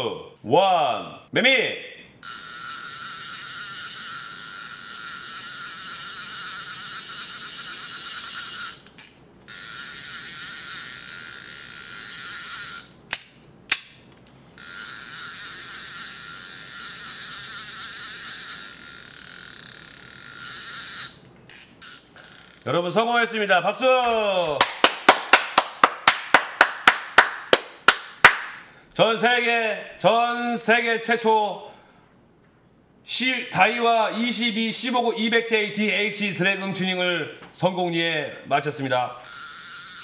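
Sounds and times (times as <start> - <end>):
fishing reel drag buzzing: 2.2 - 13.0, 14.6 - 22.7, 39.2 - 40.0.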